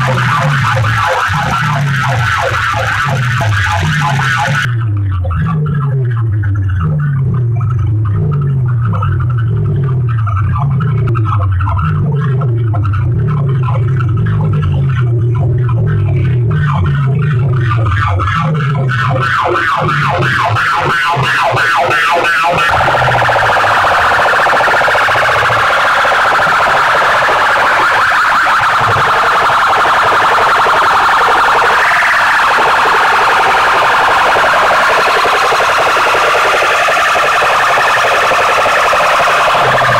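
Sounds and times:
dense harsh high electronic sound: 0.0s - 4.7s, 12.4s - 39.9s
stepped low bass notes: 0.0s - 20.8s
rapid even electronic pulsing: 0.0s - 39.9s.

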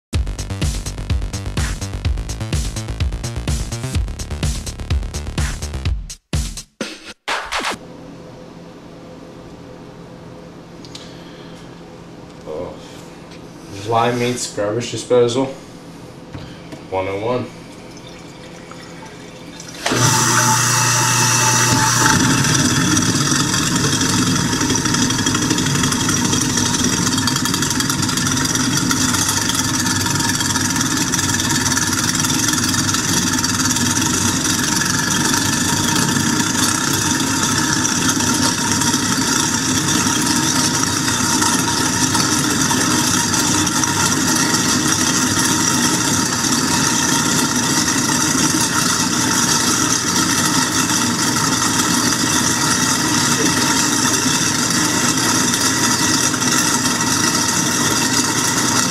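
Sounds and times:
garbage disposal grinding: 16.9s - 58.9s
tap water pouring into drain: 17.7s - 58.9s.

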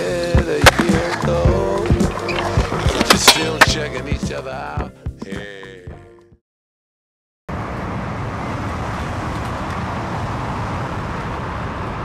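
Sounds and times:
music: 0.0s - 6.4s
road traffic rumble: 7.5s - 12.0s.

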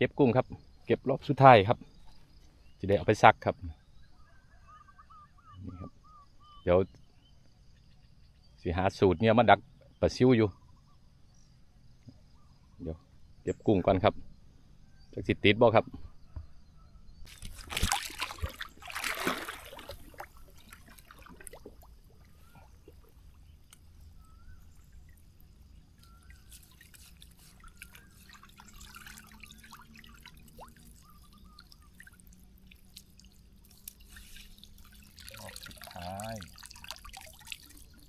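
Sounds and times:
water dripping and trickling: 17.3s - 38.0s
water splashing: 17.3s - 38.0s.

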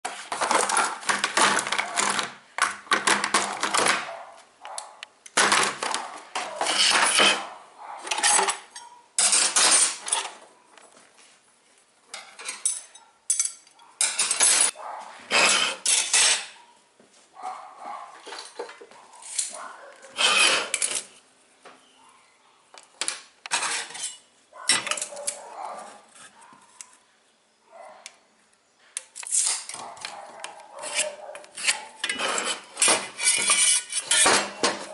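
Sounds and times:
metal hand tools clattering: 8.1s - 10.4s, 12.2s - 14.7s, 23.5s - 25.3s, 30.9s - 34.9s.

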